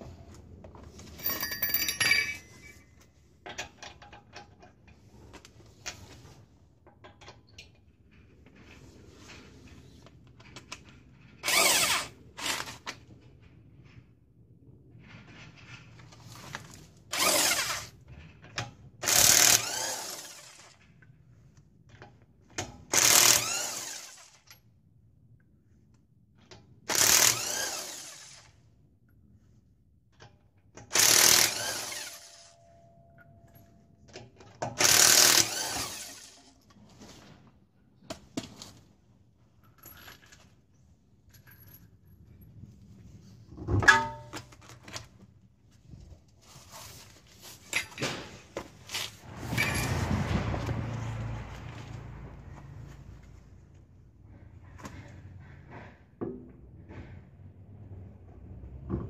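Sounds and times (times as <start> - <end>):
impact wrench hammering lug nuts: 30.9 - 32.6, 34.7 - 36.3.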